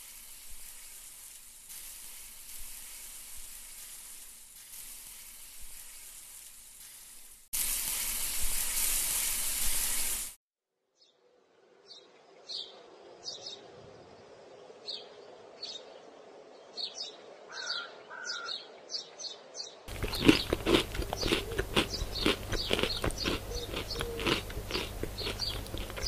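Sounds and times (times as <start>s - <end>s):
faint bird chirps: 11.0s - 19.8s
loud chewing and crunching: 19.9s - 26.0s.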